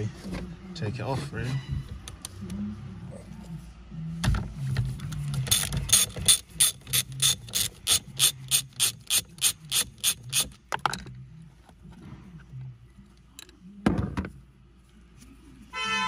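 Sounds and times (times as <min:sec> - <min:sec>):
ratchet wrench clicking: 0:05.4 - 0:10.6.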